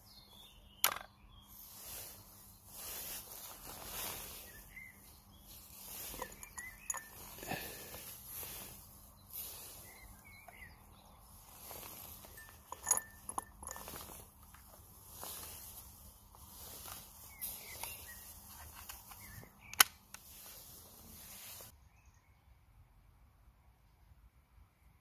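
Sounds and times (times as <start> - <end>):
birds chirping: 0.0 - 22.5
steady outdoor hiss: 0.0 - 25.0
air pistol clicks and knocks: 18.7 - 20.2.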